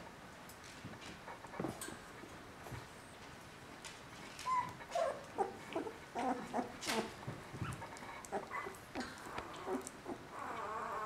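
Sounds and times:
puppies whimpering and grunting: 0:04.4 - 0:11.0.

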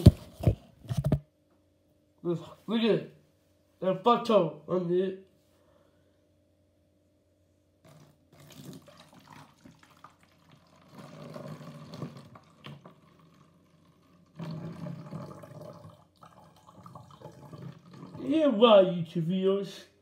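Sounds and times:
liquid pouring into plastic bottle: 0:07.8 - 0:18.3.

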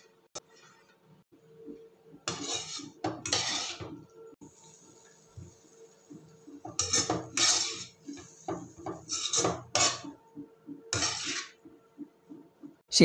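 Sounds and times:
metal spoon scraping a wok: 0:02.3 - 0:04.1, 0:06.6 - 0:10.2, 0:10.9 - 0:11.6.

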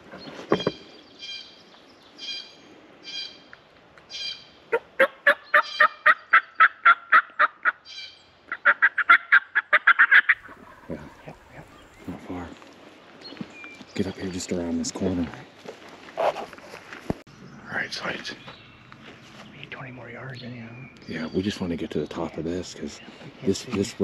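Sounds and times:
turkey call yelping: 0:04.2 - 0:12.0.

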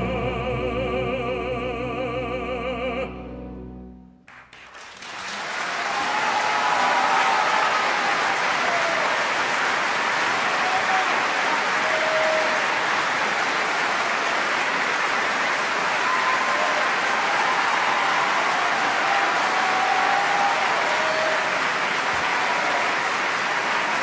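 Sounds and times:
audience applauding: 0:04.3 - 0:24.0
audience shouting: 0:05.6 - 0:14.5, 0:15.6 - 0:24.0.

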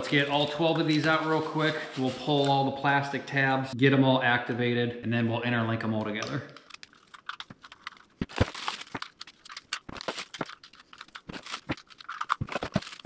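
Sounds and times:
plastic objects clicking and knocking: 0:06.2 - 0:13.0
plastic packaging crinkling and tearing: 0:06.8 - 0:13.0.

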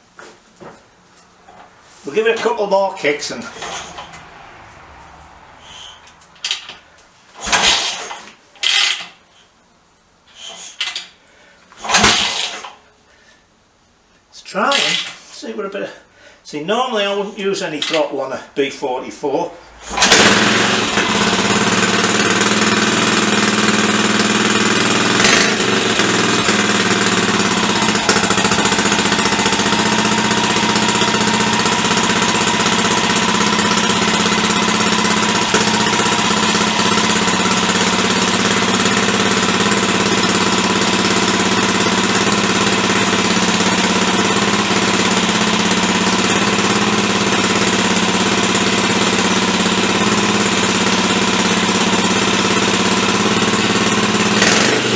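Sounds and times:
single-cylinder engine running: 0:02.3 - 0:09.2, 0:11.8 - 0:12.8, 0:19.6 - 0:54.9.

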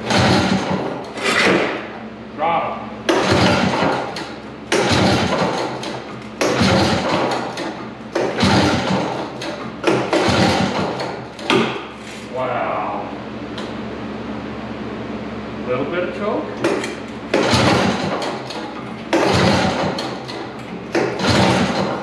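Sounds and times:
engine pull-starter cranking: 0:00.0 - 0:01.7, 0:03.1 - 0:11.6, 0:16.7 - 0:22.0.

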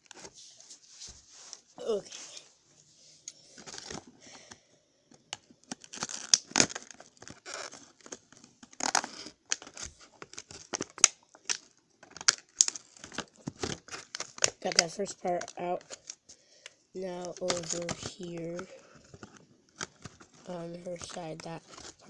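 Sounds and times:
plastic packaging crackling: 0:03.4 - 0:22.0.

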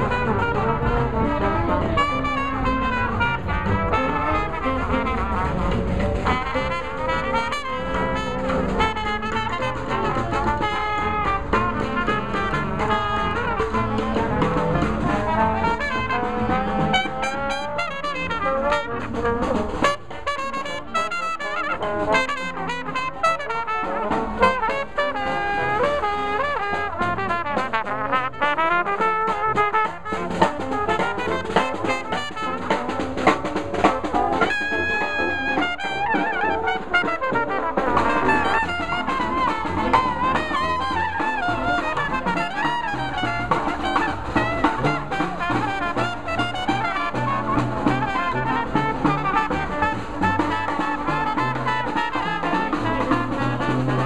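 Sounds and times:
brass band playing jazz: 0:00.0 - 0:54.0
marching snare drum: 0:00.0 - 0:54.0.

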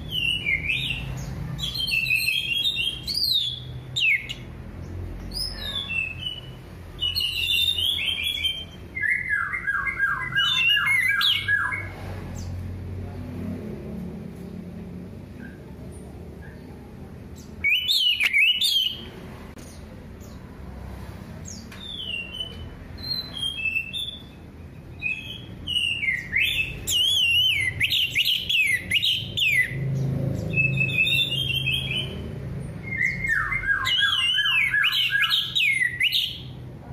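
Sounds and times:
thrush singing whistled warbles: 0:00.0 - 0:04.5, 0:05.3 - 0:11.9, 0:17.6 - 0:19.1, 0:21.8 - 0:29.8, 0:30.4 - 0:36.6.

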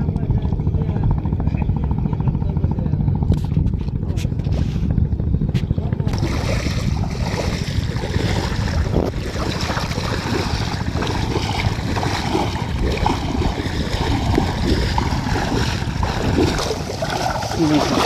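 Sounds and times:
wind buffeting microphone: 0:00.0 - 0:18.0
water sloshing and splashing: 0:06.1 - 0:18.0.

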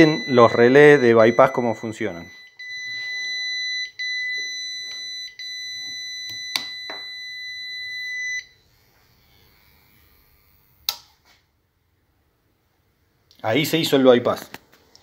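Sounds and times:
high-pitched warning beep: 0:00.0 - 0:08.6
sharp clicks: 0:10.8 - 0:11.1.

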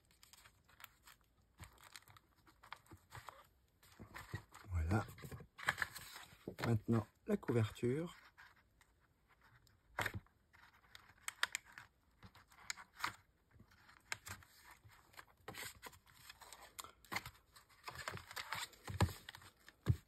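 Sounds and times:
paper rustling: 0:00.0 - 0:07.0.

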